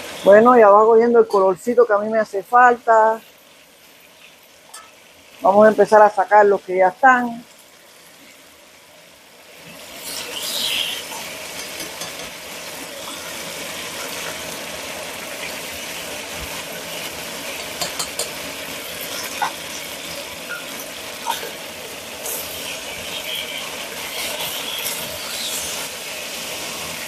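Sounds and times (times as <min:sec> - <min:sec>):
chicken sizzling in oil: 0:00.0 - 0:27.0
metal tongs clicking on pot: 0:17.8 - 0:18.4.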